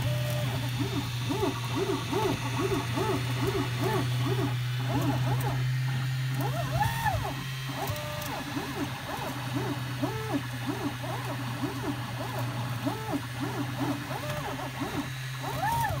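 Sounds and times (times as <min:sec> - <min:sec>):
steady low hum: 0:00.0 - 0:16.0
stepper motors whining: 0:00.0 - 0:16.0.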